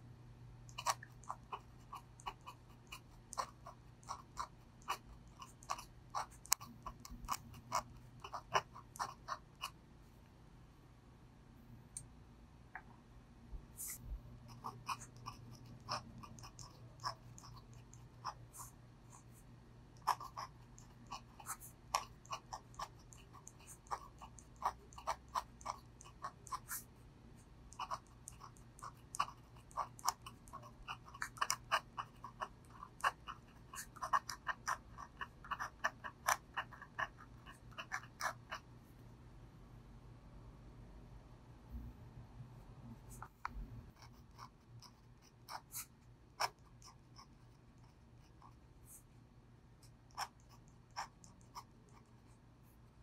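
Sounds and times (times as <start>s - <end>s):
pen nib scratching on paper: 0.7s - 10.2s, 13.7s - 39.1s, 42.9s - 49.2s, 49.8s - 53.0s.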